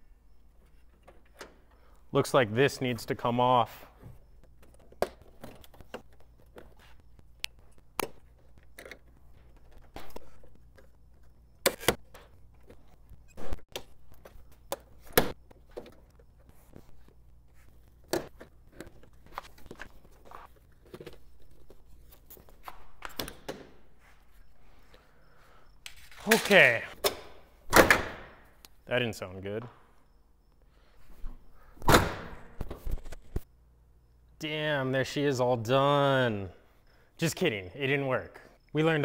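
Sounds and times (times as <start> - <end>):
hands clicking and knocking parts: 7.4 - 13.0.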